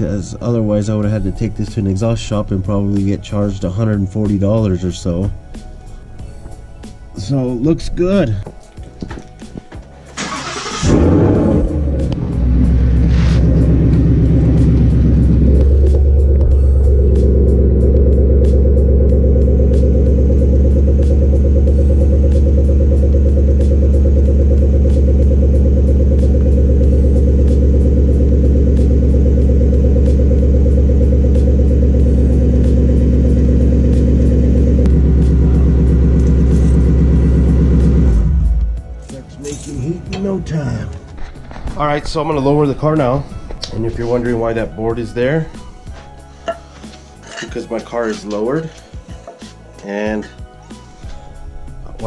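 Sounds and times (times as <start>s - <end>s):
starter cranking: 10.2s - 28.9s
car engine revving and idling: 10.2s - 39.1s.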